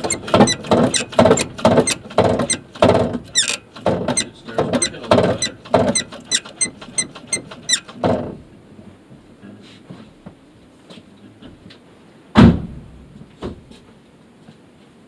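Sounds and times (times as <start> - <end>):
clutch pedal squeaking: 0.0 - 8.0.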